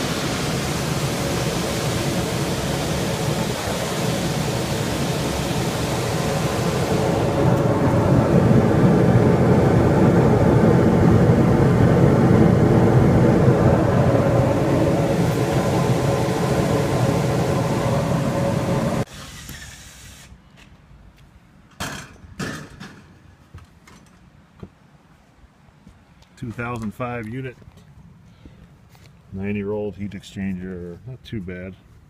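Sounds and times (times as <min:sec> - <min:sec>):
gas burners roaring with hum: 0:00.0 - 0:20.3.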